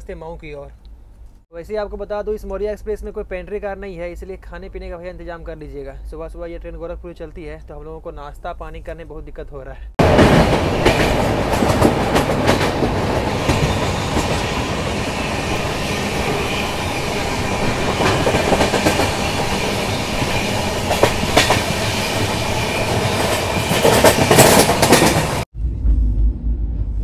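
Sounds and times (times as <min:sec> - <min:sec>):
clickety-clack of rail joints: 0:10.0 - 0:14.6, 0:17.9 - 0:19.2, 0:20.2 - 0:21.8, 0:22.9 - 0:25.4
loud train clatter: 0:10.0 - 0:25.5
train wheels rumbling on rails: 0:10.0 - 0:26.8.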